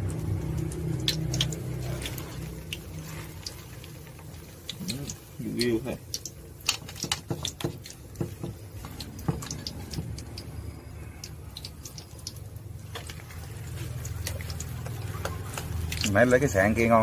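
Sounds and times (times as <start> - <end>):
oil popping and crackling: 0.0 - 17.0
metal spatula knocking in pan: 6.9 - 9.5.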